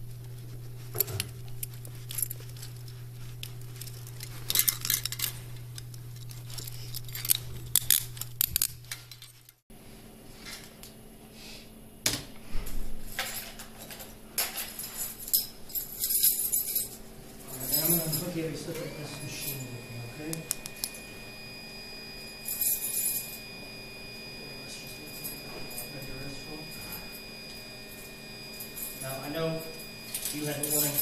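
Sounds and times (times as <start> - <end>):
steady low hum: 0.0 - 31.0
keys jingling: 0.9 - 9.6, 13.1 - 19.7, 24.9 - 31.0
handcuffs clinking and clicking: 1.6 - 9.6.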